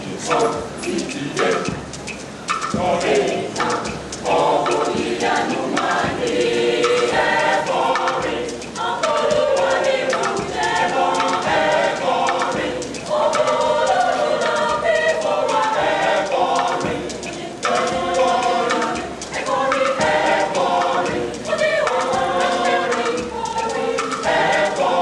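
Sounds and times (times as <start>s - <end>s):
mixed choir singing: 0.0s - 1.8s, 2.6s - 25.0s.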